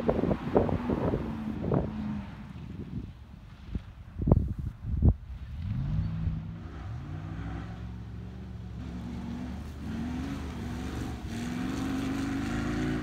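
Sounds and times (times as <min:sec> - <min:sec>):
racing car engine revving: 0:05.6 - 0:13.0.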